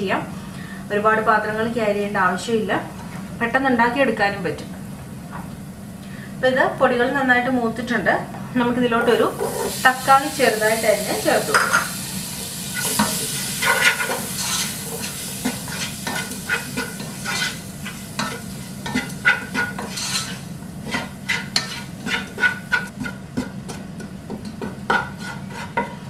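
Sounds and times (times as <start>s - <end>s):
food sizzling in oil: 9.1s - 23.6s
wooden spatula scraping a pot: 12.7s - 26.0s.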